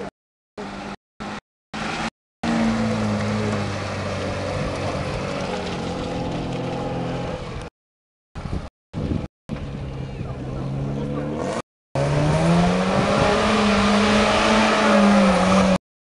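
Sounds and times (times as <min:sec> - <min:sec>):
car engine running: 0:00.0 - 0:07.7.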